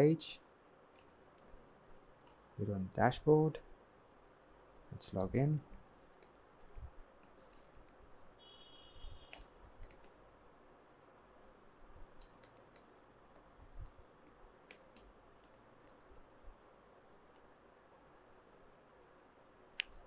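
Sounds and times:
faint typing on a computer keyboard: 0:00.9 - 0:02.4, 0:03.8 - 0:04.2, 0:05.0 - 0:10.3, 0:11.1 - 0:16.3, 0:17.2 - 0:17.5.

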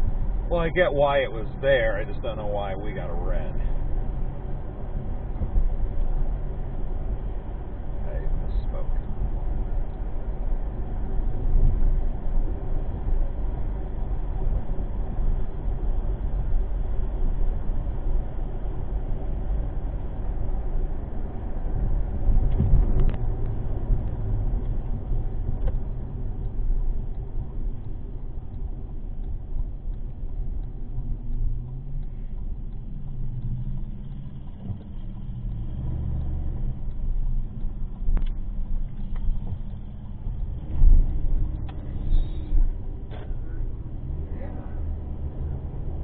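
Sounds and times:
car engine and road noise: 0:00.0 - 0:46.0
faint clicks: 0:24.6 - 0:43.4.

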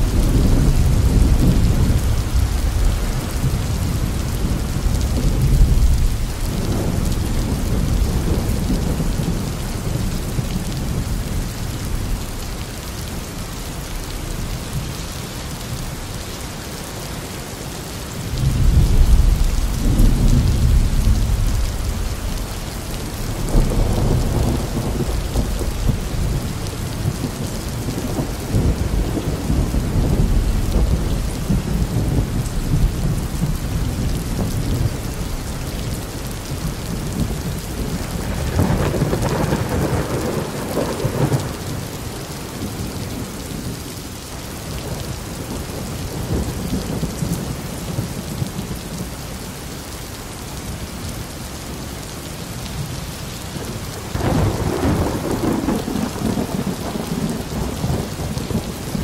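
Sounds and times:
thunder rumbling: 0:00.0 - 0:13.2, 0:18.2 - 0:44.0, 0:53.6 - 0:59.0
steady rain hissing: 0:00.0 - 0:59.0.

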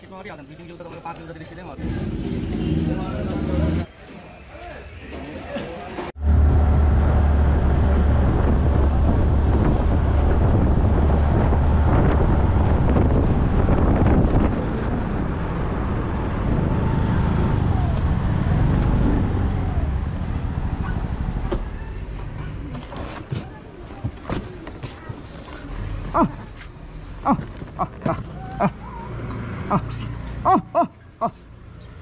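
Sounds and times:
wind rumble on microphone: 0:06.2 - 0:21.4.

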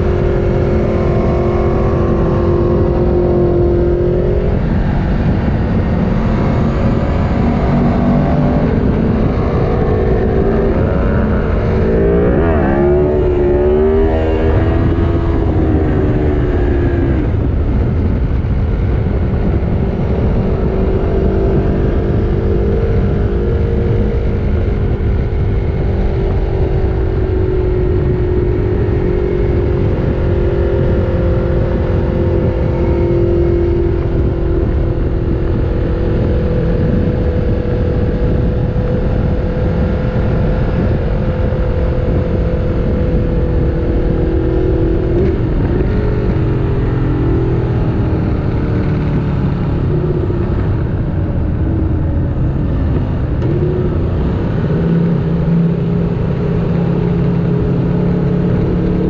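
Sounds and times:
motorcycle engine at high revs: 0:00.0 - 0:59.0
wind rush on microphone: 0:00.0 - 0:59.0.

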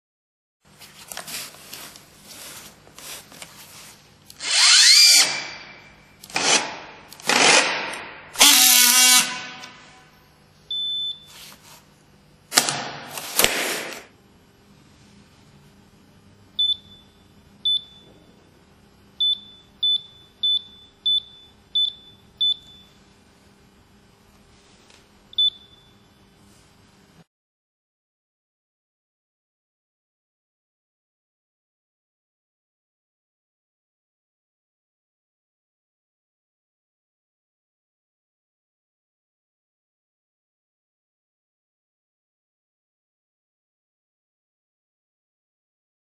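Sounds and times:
strapping tool motor whirring: 0:04.3 - 0:05.6, 0:06.2 - 0:09.7.

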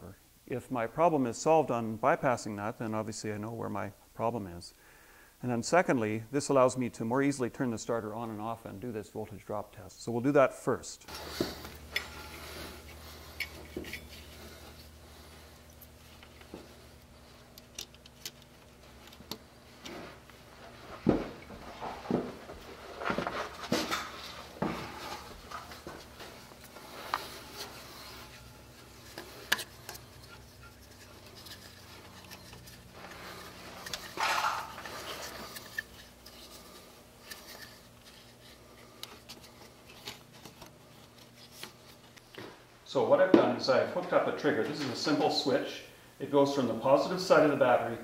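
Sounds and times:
low steady hum: 0:00.0 - 0:48.0
hands handling wire connector: 0:11.1 - 0:20.4, 0:21.0 - 0:42.5
small clicks and rubbing: 0:15.6 - 0:20.4, 0:25.6 - 0:42.4.

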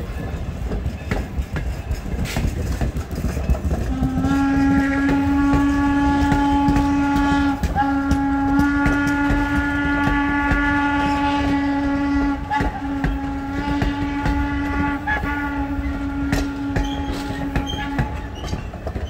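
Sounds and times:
train rumble and clatter: 0:00.0 - 0:19.0
steam whistle blasts: 0:03.9 - 0:18.6.

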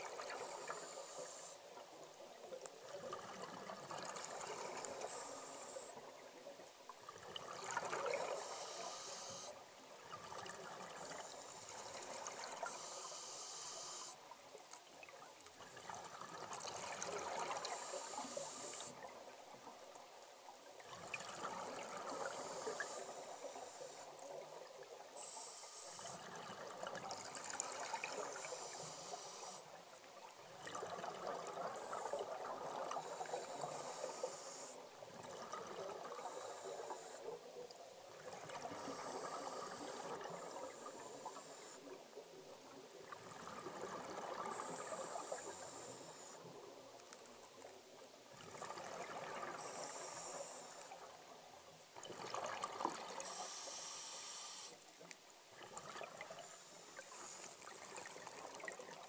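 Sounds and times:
regulator hiss on inhale: 0:00.0 - 0:01.8, 0:04.4 - 0:06.2, 0:08.0 - 0:09.6, 0:11.0 - 0:14.3, 0:16.6 - 0:19.1, 0:21.7 - 0:24.4, 0:25.2 - 0:26.4, 0:27.6 - 0:29.8, 0:31.7 - 0:34.9, 0:36.1 - 0:37.4, 0:38.5 - 0:42.0, 0:44.4 - 0:46.6, 0:49.4 - 0:51.2, 0:53.2 - 0:54.9, 0:56.3 - 0:57.9.

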